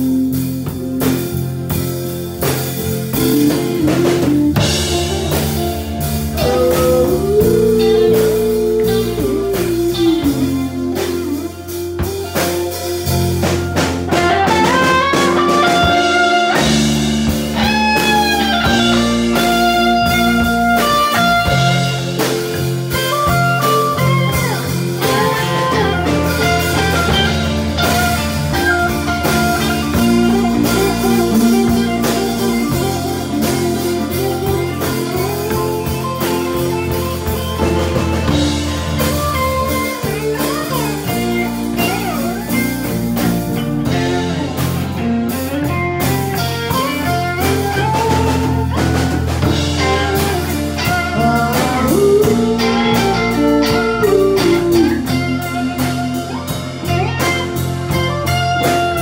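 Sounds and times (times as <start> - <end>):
live band playing: 0.0 - 59.0
lead melody bending in pitch: 3.0 - 12.2.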